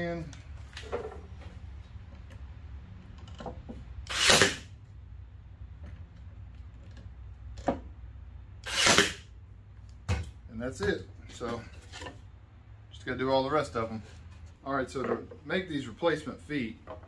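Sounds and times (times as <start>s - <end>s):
brad nailer firing: 4.0s - 4.7s, 8.6s - 9.3s.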